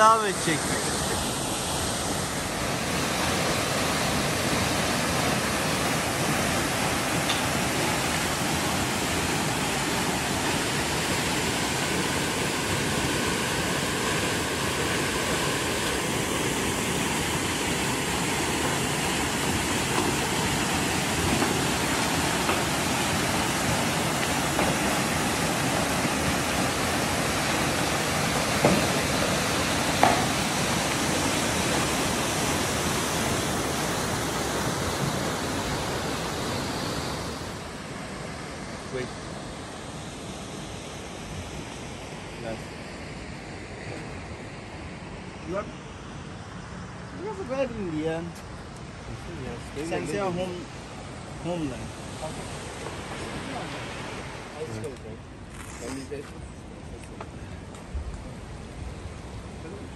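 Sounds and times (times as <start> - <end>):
waterfall rushing: 0.0 - 42.6, 49.4 - 54.9.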